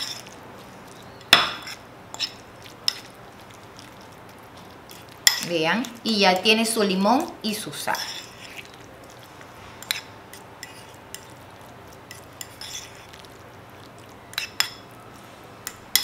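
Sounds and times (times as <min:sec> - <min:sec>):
fork stirring mashed avocado: 0:00.0 - 0:16.0
fork clinking against bowl: 0:15.6 - 0:16.0.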